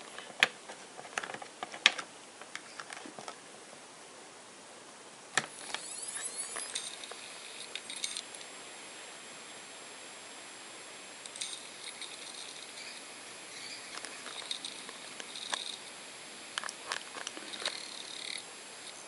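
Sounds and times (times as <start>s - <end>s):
hard drive high tone: 5.4s - 19.0s
hard drive head clicks and chatter: 11.2s - 19.0s.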